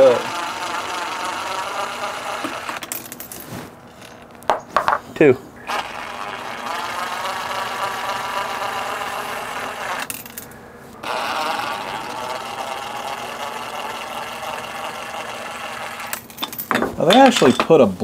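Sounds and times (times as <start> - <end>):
cordless drill motor whine: 0.0 - 2.9, 5.6 - 16.3.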